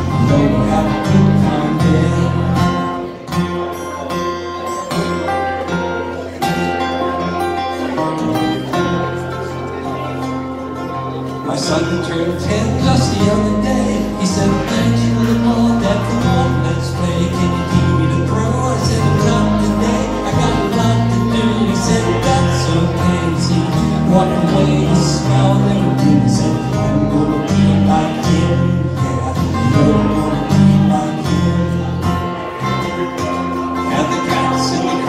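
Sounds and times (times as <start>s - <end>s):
acoustic guitars strumming chords: 0.0s - 35.0s
moving bass line: 11.8s - 35.0s.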